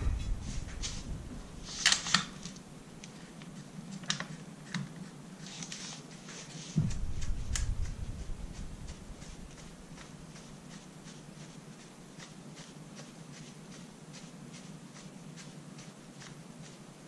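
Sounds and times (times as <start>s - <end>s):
low handling rumble: 0.0s - 1.7s, 6.8s - 10.0s
metallic clicks of gun parts: 1.8s - 2.5s.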